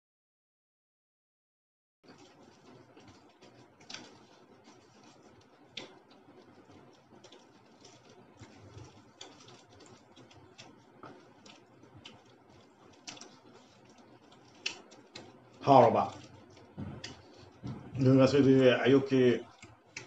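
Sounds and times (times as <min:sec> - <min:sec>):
faint small clicks and scratches: 0:02.1 - 0:17.9.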